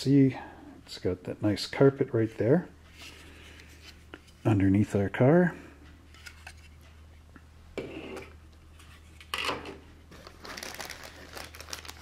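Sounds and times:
plastic bag crinkling: 10.1s - 12.0s.

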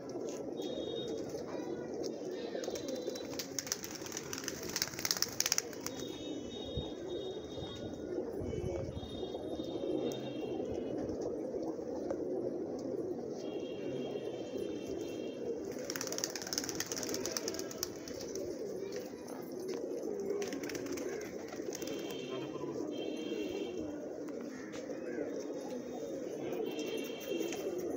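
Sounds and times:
pigeons cooing: 0.0s - 27.9s
wings flapping: 2.6s - 6.2s, 15.6s - 19.2s, 20.2s - 22.5s.

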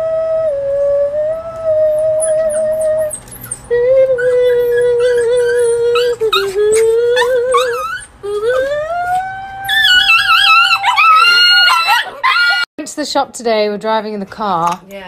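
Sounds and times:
dog howling: 1.3s - 12.7s
woman howling: 3.7s - 12.7s.

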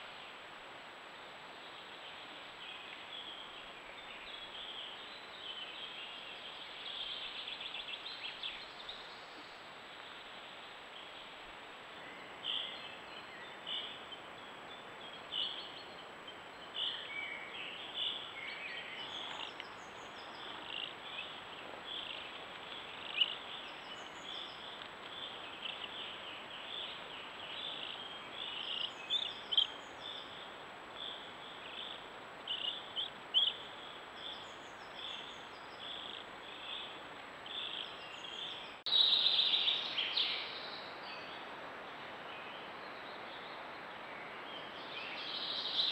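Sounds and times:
steady background hiss: 0.0s - 45.9s
songbirds chirping and singing: 12.0s - 41.4s.

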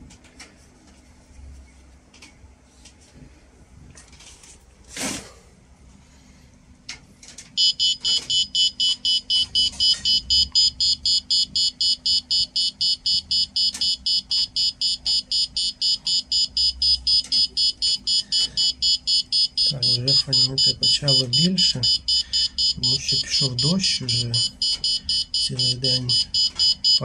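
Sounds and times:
dosimeter beeping rapidly: 7.6s - 27.0s.

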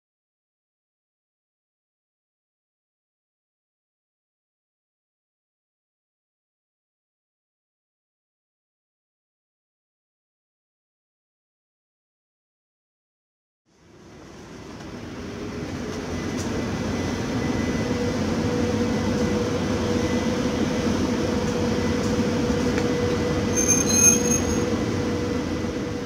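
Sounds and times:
train wheels rumbling on rails: 13.9s - 26.0s
locomotive motor hum: 14.0s - 26.0s
high wheel squeal: 22.9s - 24.9s.

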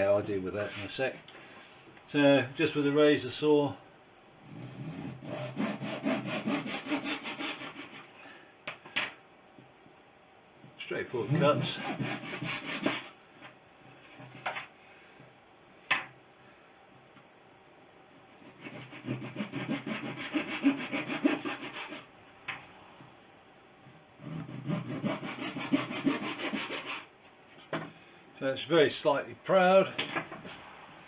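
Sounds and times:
saw cutting thin wood: 4.7s - 8.0s, 11.2s - 13.1s, 18.6s - 22.1s, 24.2s - 27.1s.

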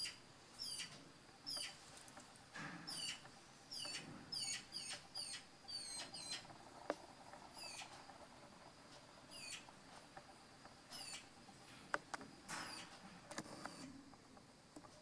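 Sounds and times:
fledgling bird squeaky begging calls: 0.0s - 1.8s, 2.9s - 6.5s, 7.6s - 7.9s, 9.3s - 9.7s, 10.9s - 11.3s.

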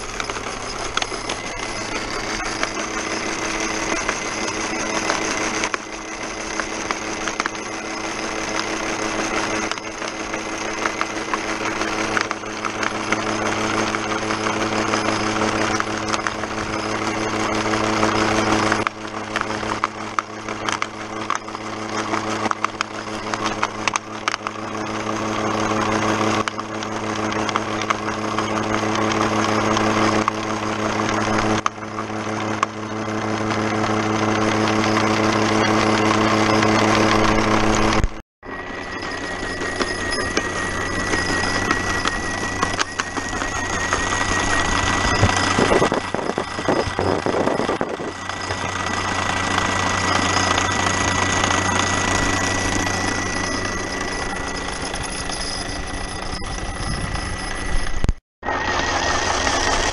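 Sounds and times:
jaw crusher hum: 0.0s - 59.9s
thin high whine: 0.0s - 59.9s.

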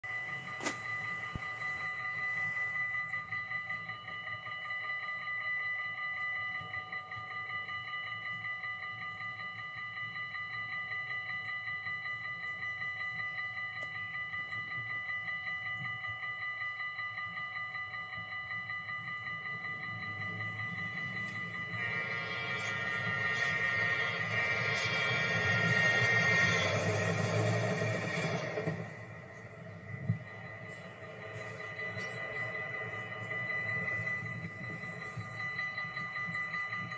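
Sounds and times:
level crossing bell ringing: 0.0s - 36.9s
low rumble: 19.9s - 36.9s.

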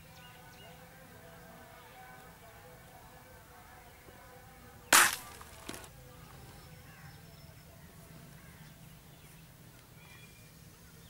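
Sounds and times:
air rifle firing crack: 5.0s - 5.9s.

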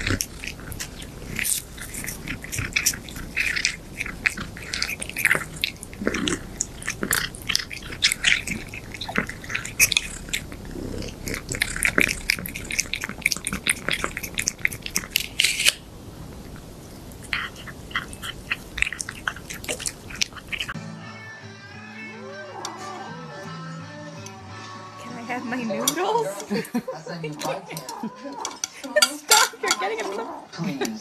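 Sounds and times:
cat crunching treats: 0.0s - 20.8s.

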